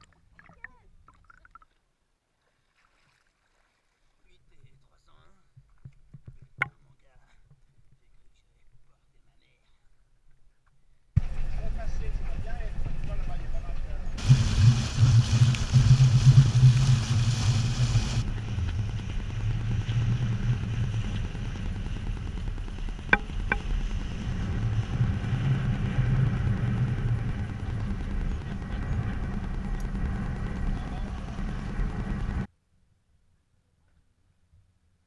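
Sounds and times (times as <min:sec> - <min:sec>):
wind buffeting microphone: 0:14.1 - 0:32.5
bow spray hiss: 0:14.2 - 0:32.4
water rushing past hull: 0:14.2 - 0:32.5.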